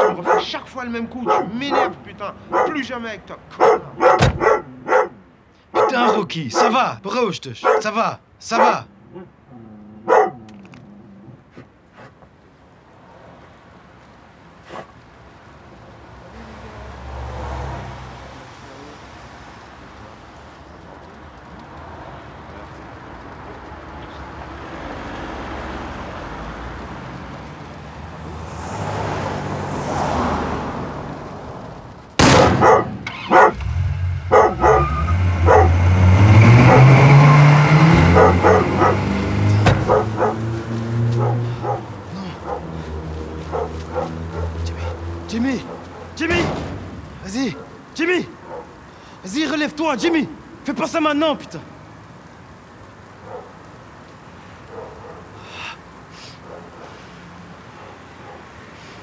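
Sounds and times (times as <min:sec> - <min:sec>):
dog barking loudly: 0:00.0 - 0:07.0, 0:07.6 - 0:08.9, 0:10.0 - 0:10.5, 0:32.6 - 0:33.7, 0:34.3 - 0:46.3, 0:47.4 - 0:48.8, 0:53.2 - 0:53.6, 0:54.7 - 0:55.4, 0:56.4 - 0:57.0, 0:57.7 - 0:58.6
quiet street background: 0:00.0 - 0:59.0.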